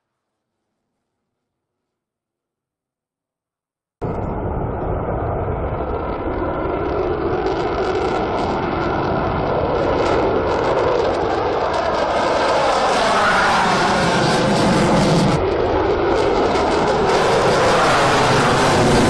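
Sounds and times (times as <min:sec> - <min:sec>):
jet engine afterburner roar: 0:04.0 - 0:19.0.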